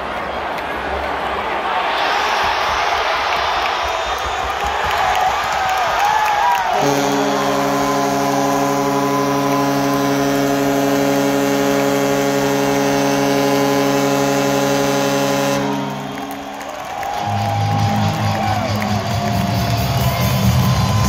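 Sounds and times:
crowd cheering: 0:00.0 - 0:21.0
goal horn long blast: 0:06.7 - 0:18.9.

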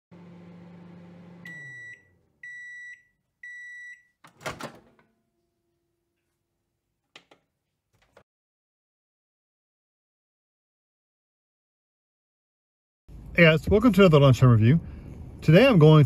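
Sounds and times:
microwave oven humming: 0:00.1 - 0:05.5
microwave beeps: 0:01.0 - 0:04.2
microwave door latch clunk: 0:04.3 - 0:05.0.

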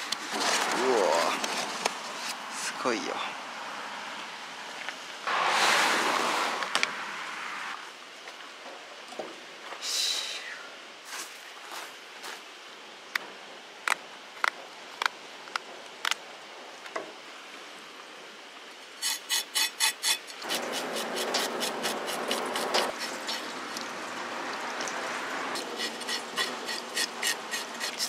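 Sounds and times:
knife scraping fish: 0:19.0 - 0:23.5, 0:25.6 - 0:28.0.

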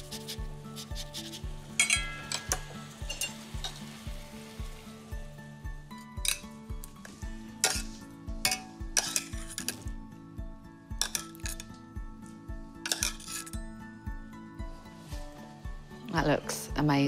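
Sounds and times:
metal utensils clinking on dishes: 0:01.8 - 0:03.9, 0:06.1 - 0:09.9, 0:11.0 - 0:11.8, 0:12.9 - 0:13.7.

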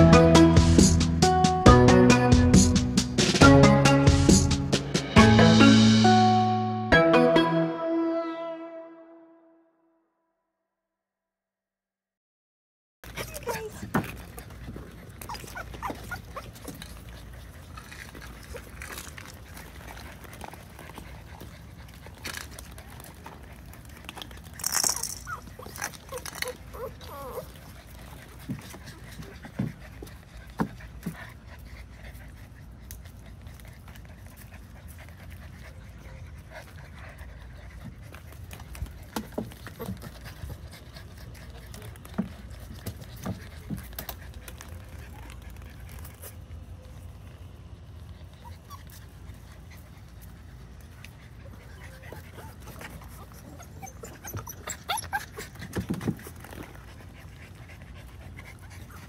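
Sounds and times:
puppies panting: 0:13.1 - 0:59.0
puppies whining and yipping: 0:13.1 - 0:59.0.

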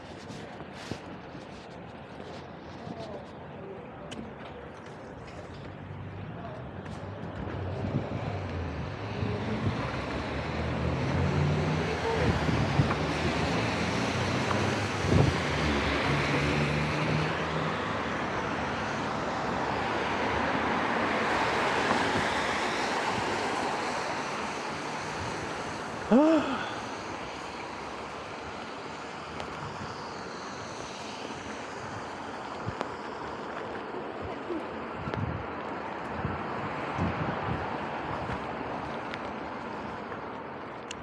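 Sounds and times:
traffic: 0:00.0 - 0:41.0
wind buffeting microphone: 0:06.1 - 0:15.9, 0:31.7 - 0:40.4
tyre hiss on wet road: 0:10.3 - 0:34.6.

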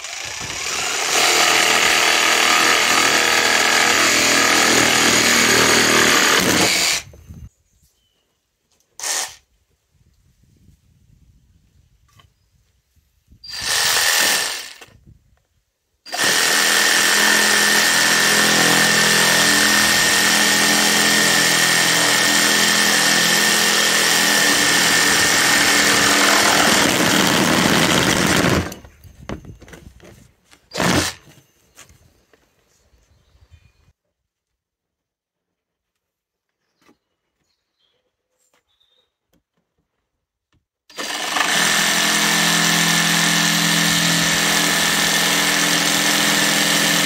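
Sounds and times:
reciprocating saw cutting pipe: 0:00.0 - 0:07.1, 0:16.1 - 0:28.8, 0:40.9 - 0:47.0.

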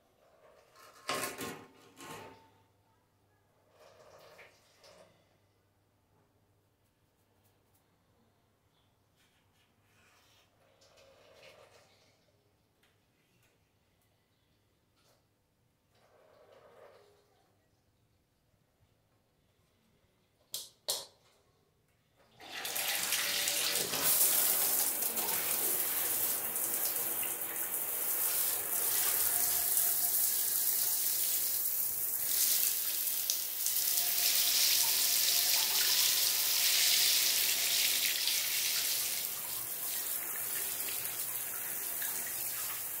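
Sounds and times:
shower spraying into bathtub: 0:22.5 - 0:43.0.

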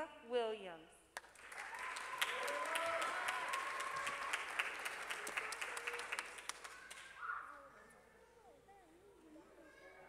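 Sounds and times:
audience clapping: 0:01.2 - 0:07.2.

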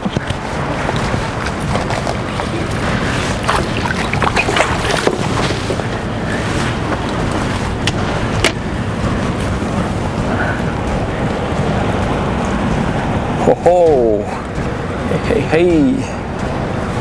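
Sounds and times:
wind buffeting microphone: 0:00.0 - 0:17.0
fish splashing water: 0:00.6 - 0:07.3.

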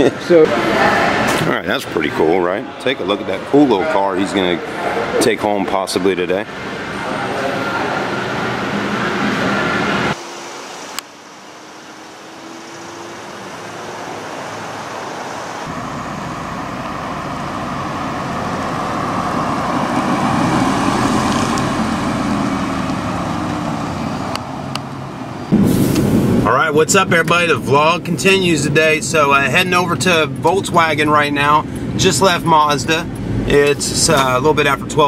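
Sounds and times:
car driving past: 0:06.4 - 0:27.5.

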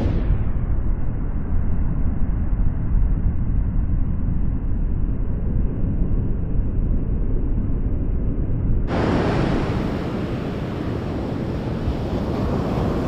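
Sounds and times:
muffled surf churning: 0:08.9 - 0:13.0.

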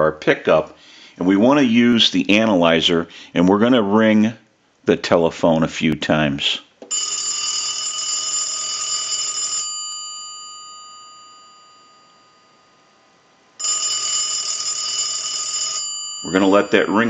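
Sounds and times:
telephone bell ringing: 0:06.9 - 0:13.0, 0:13.6 - 0:17.0.

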